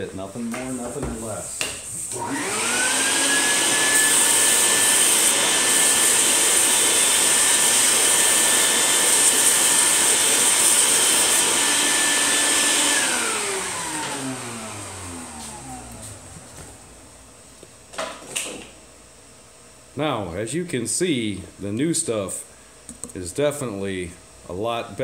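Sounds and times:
vacuum cleaner running: 0.6s - 18.8s.

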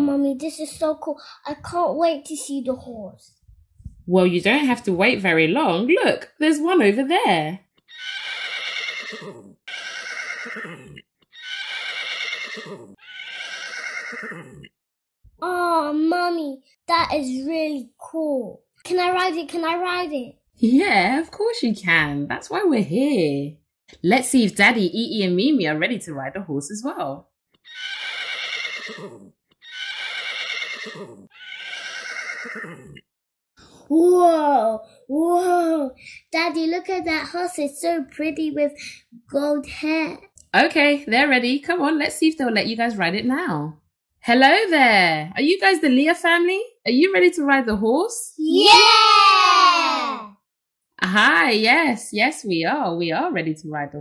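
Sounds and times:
horse whinnying: 7.8s - 14.8s, 27.6s - 33.1s.

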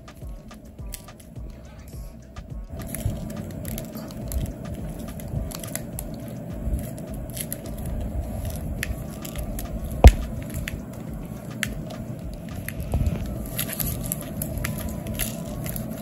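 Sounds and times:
crackles of sugar granules: 0.0s - 16.0s
sharp knock: 10.0s - 10.7s.

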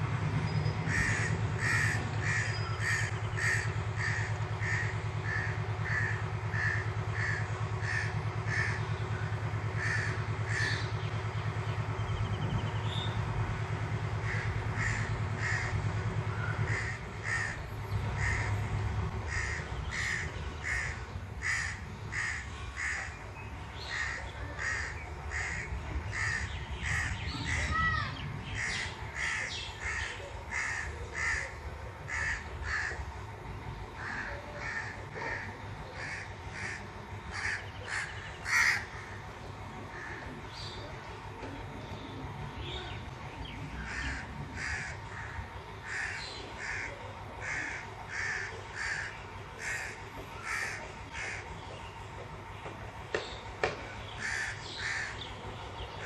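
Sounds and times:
low rumble: 0.0s - 40.9s
bird calling: 0.6s - 18.6s, 19.2s - 33.2s, 33.9s - 56.0s.

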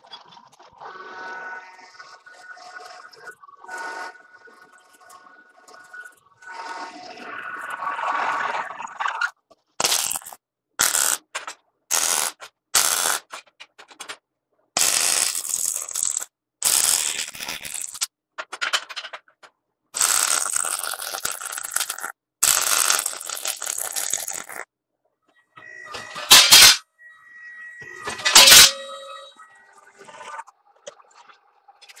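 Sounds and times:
welding arc crackling: 9.8s - 11.3s, 11.9s - 13.4s, 14.8s - 18.1s, 20.0s - 24.6s.

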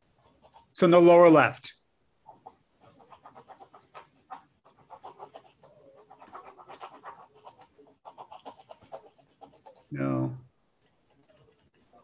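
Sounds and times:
faint scratchy rustling and clicks: 10.7s - 12.0s.

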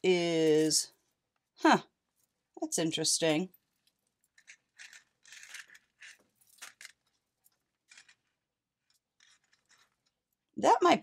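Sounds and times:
beads clicking together: 3.8s - 9.9s.

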